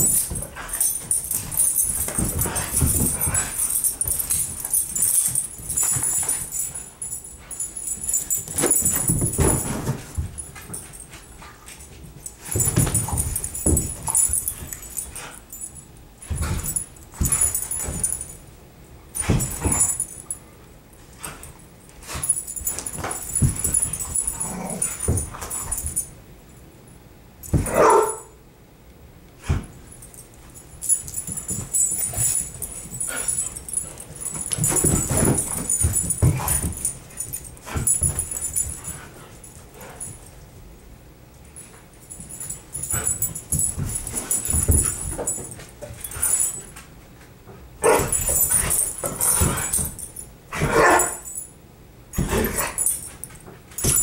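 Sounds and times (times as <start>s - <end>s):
dogs scuffling: 0.0s - 18.3s, 29.7s - 40.4s, 41.6s - 46.9s.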